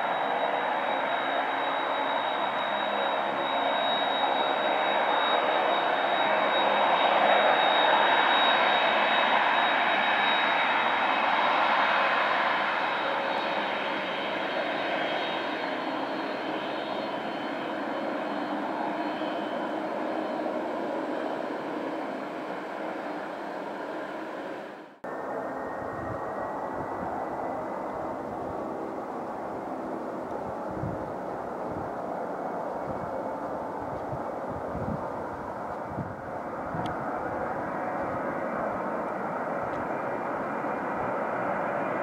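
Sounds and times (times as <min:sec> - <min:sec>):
jet engines whining at taxi power: 0:00.0 - 0:42.0.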